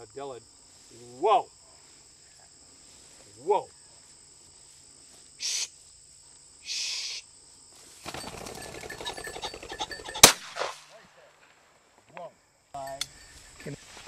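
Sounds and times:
bird wingbeats clattering: 8.0s - 10.3s
shotgun shot: 10.2s - 11.0s.

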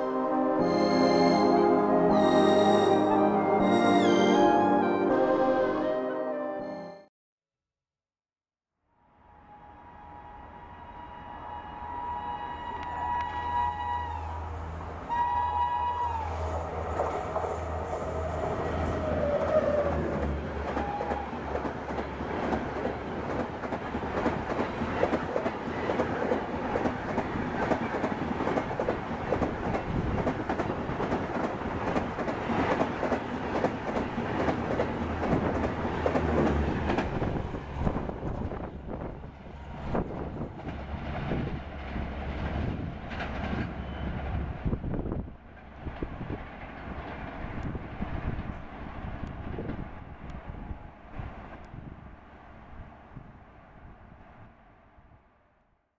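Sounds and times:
locomotive horn blasts: 0.0s - 6.9s, 9.8s - 16.9s
train wheels roaring on rail: 9.4s - 55.2s
clatter over rail joints: 39.8s - 44.8s.

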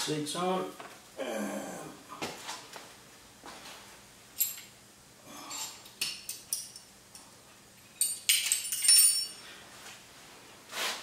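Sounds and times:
small metal parts clinking: 7.8s - 9.4s.

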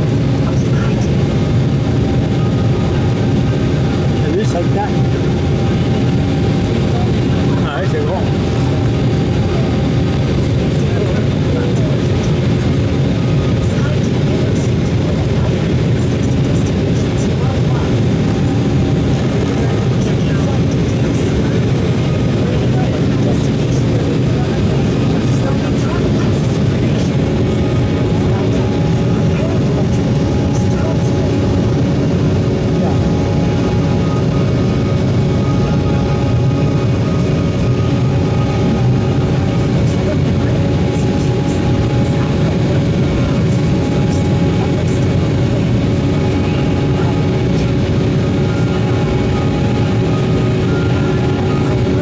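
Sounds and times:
jet cabin engine and airflow noise: 0.0s - 52.0s.

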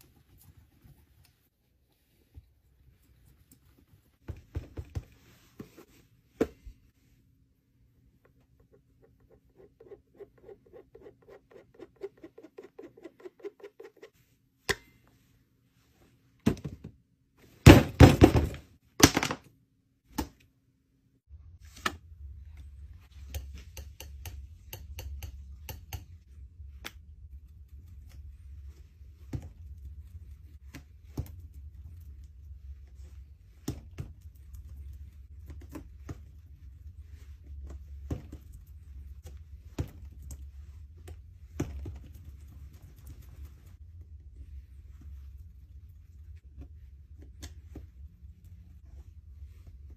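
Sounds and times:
low steady hum: 19.5s - 49.9s.

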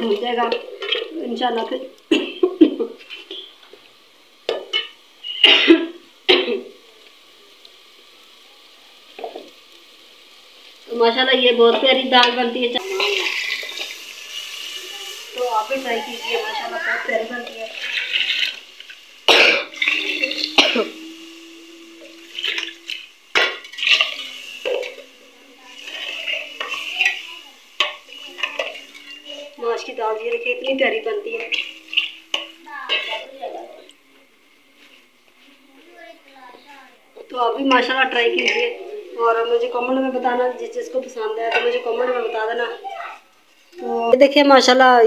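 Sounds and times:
faint sizzle of frying food: 0.0s - 45.0s
person coughing: 5.4s - 6.6s, 19.3s - 19.7s.

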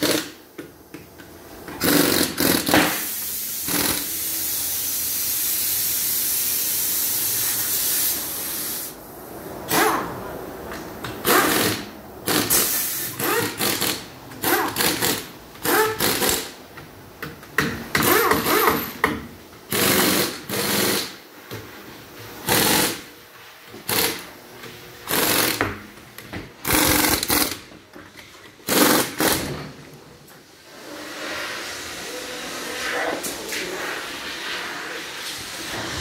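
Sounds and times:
pneumatic impact wrench rattling: 0.0s - 0.4s, 1.7s - 4.6s, 9.7s - 10.0s, 11.2s - 16.6s, 17.9s - 19.1s, 19.7s - 21.2s, 22.4s - 23.1s, 23.8s - 24.3s, 25.0s - 25.8s, 26.6s - 27.7s, 28.6s - 29.7s.

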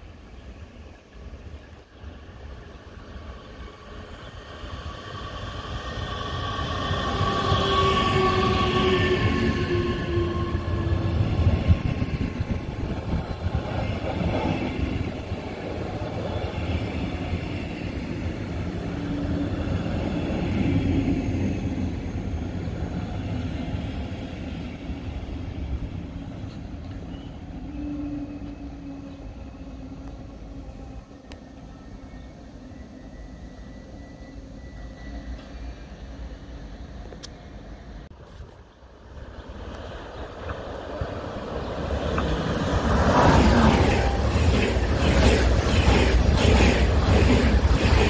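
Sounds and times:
train wheels rumbling on rail: 1.2s - 32.4s, 39.2s - 48.0s.

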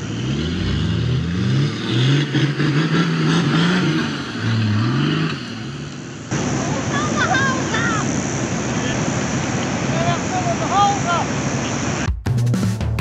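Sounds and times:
engine revving hard: 0.0s - 5.9s.

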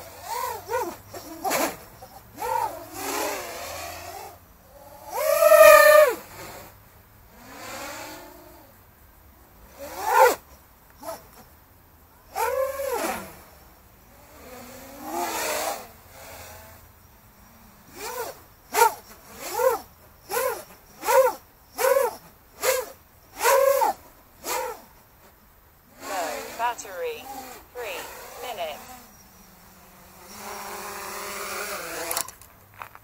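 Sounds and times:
quadcopter motors whining: 0.0s - 6.7s, 12.3s - 24.9s, 25.9s - 32.4s.

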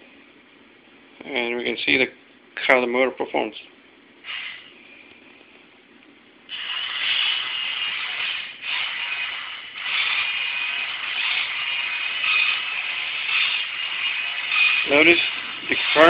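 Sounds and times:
small motor whirring: 6.5s - 16.0s.

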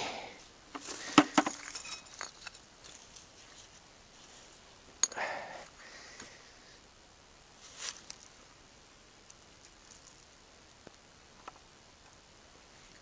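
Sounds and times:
glass and metal clinking: 1.5s - 2.6s.

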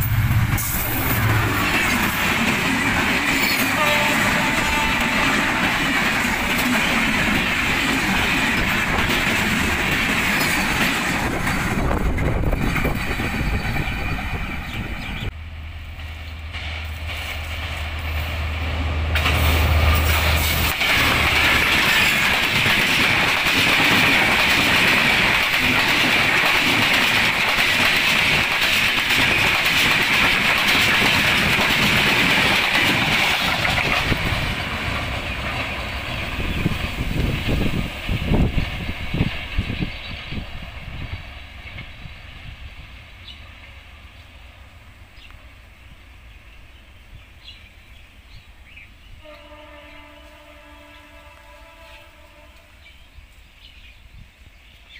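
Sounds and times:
train wheels clattering on rails: 0.0s - 15.3s, 15.9s - 42.1s
diesel locomotive engine hum: 0.0s - 54.9s.

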